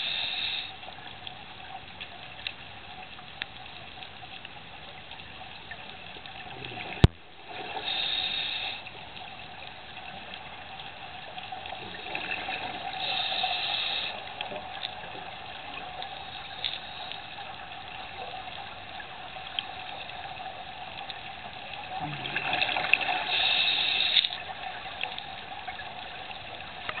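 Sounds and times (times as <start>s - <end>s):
exhaled bubbles underwater: 6.2s - 8.8s, 11.6s - 17.0s, 21.4s - 27.0s.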